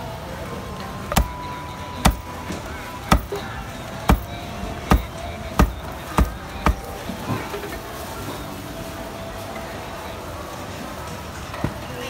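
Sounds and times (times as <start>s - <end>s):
cleaver chopping on wooden block: 1.1s - 1.4s, 2.0s - 2.3s, 3.1s - 3.4s, 4.9s - 6.9s.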